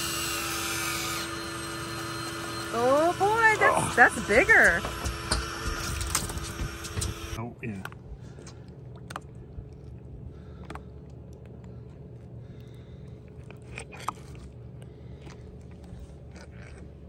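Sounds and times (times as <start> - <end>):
steady low hum: 0.0 - 17.0
wet clicks and smacks: 7.8 - 16.9.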